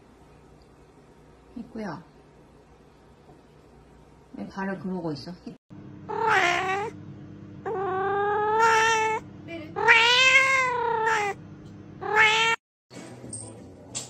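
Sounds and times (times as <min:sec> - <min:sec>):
cat meowing loudly: 0:06.1 - 0:06.9, 0:07.7 - 0:09.2, 0:09.8 - 0:11.4, 0:12.0 - 0:12.6.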